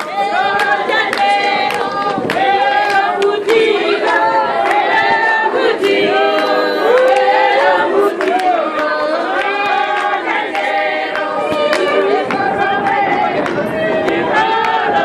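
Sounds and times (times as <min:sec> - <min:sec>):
women singing unaccompanied: 0:00.0 - 0:15.0.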